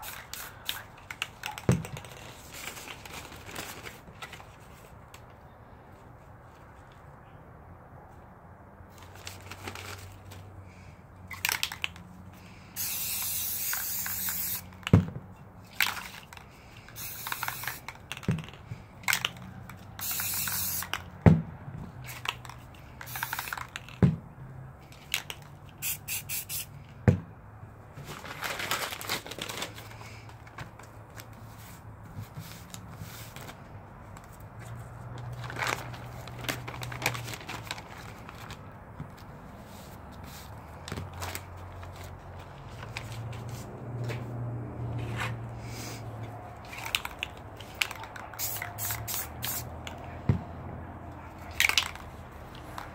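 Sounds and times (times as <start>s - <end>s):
spray paint can hissing: 0.0s - 2.0s, 12.8s - 14.9s, 17.0s - 19.3s, 20.0s - 21.0s, 23.0s - 23.9s, 25.7s - 26.7s, 46.7s - 49.8s.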